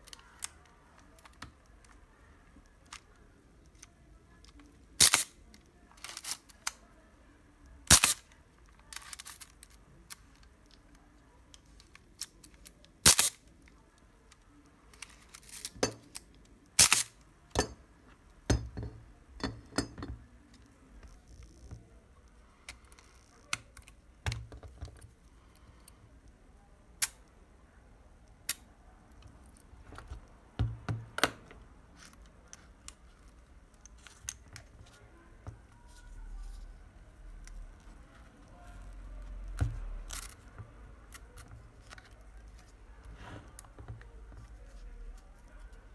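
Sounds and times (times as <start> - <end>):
dull knocks and handling noise: 24.2 - 25.1, 29.8 - 31.6.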